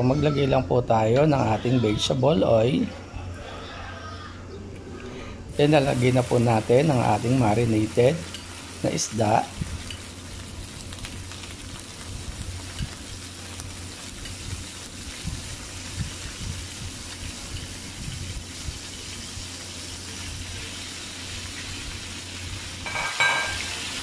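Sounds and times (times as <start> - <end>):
fish sizzling in oil: 5.5 - 24.0
ringing clink: 22.9 - 23.8.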